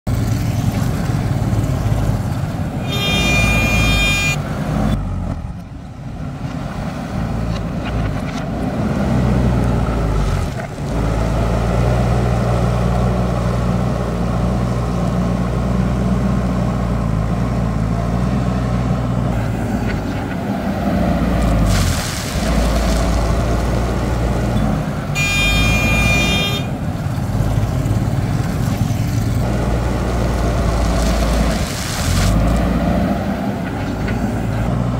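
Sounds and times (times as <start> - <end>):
diesel engine under load: 0.1 - 34.9
brief high-pitched tone: 2.8 - 4.4, 25.2 - 26.7.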